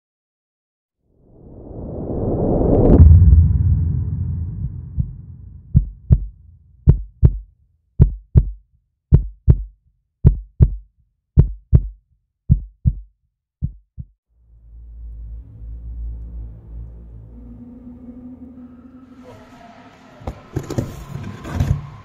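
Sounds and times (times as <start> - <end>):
whoosh: 1.2 - 6.6
heartbeat thumps: 4.2 - 10.8, 11.4 - 14.2.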